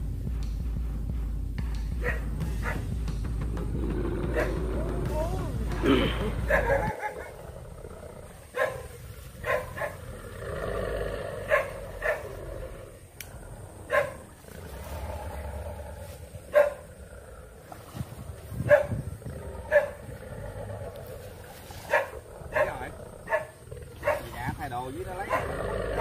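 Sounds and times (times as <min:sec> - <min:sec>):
dog barking: 0:02.0 - 0:02.9, 0:04.3 - 0:04.6, 0:06.5 - 0:07.4, 0:08.5 - 0:10.0, 0:11.5 - 0:12.4, 0:13.9 - 0:14.2, 0:16.5 - 0:16.8, 0:18.6 - 0:19.0, 0:19.7 - 0:20.0, 0:21.9 - 0:24.4, 0:25.2 - 0:26.0
dog growling: 0:03.5 - 0:26.0.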